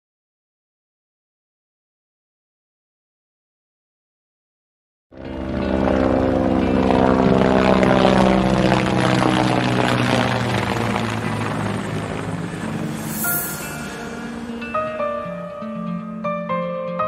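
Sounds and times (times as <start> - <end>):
loud mechanical drone: 5.2 - 15.2.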